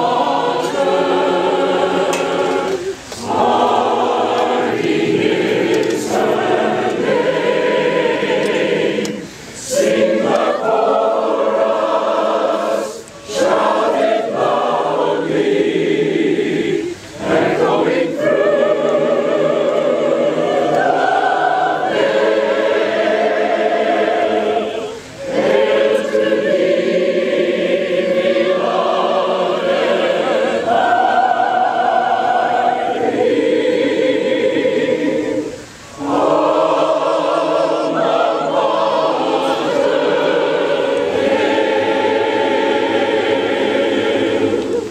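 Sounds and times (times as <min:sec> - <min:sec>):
mixed choir singing unaccompanied: 0:00.0 - 0:44.9.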